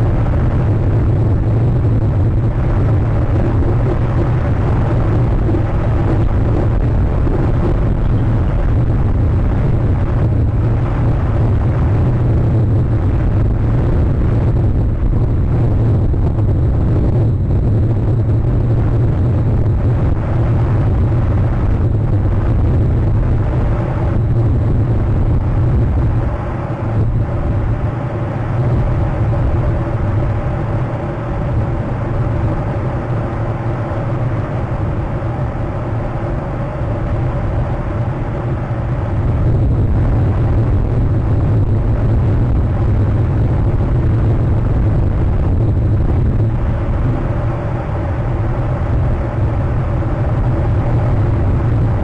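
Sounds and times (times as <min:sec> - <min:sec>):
wind buffeting microphone: 0:00.0 - 0:52.0.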